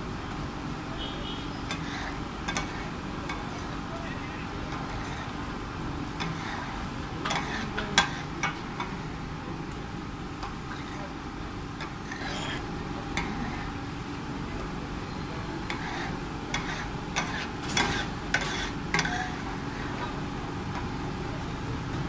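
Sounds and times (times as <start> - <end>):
spatula scraping on griddle: 1.5 - 9.2, 10.4 - 13.8, 15.5 - 20.2
spatula clacking against metal: 1.6 - 3.9, 4.6 - 5.4, 6.1 - 9.1, 10.4 - 11.1, 11.7 - 13.7, 15.6 - 20.9.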